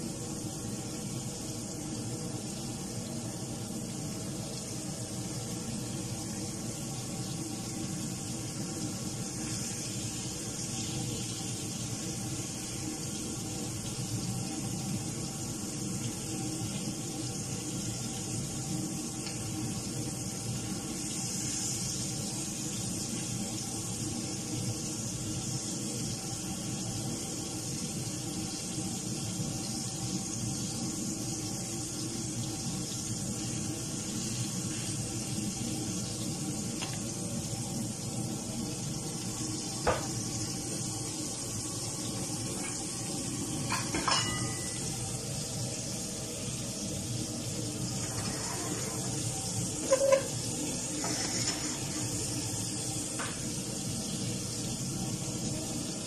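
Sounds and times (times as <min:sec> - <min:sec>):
octopus sizzling in hot oil: 0:00.0 - 0:56.0.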